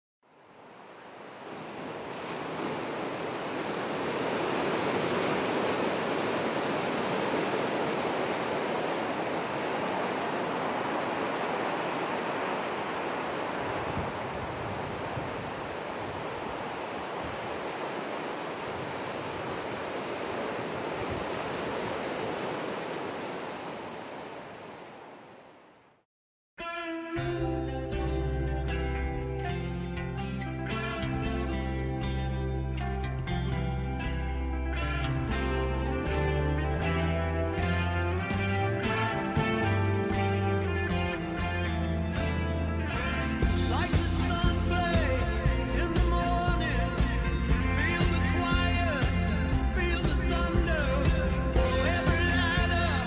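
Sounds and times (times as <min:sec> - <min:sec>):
ocean surf on rocky beach: 0:00.4 - 0:25.8.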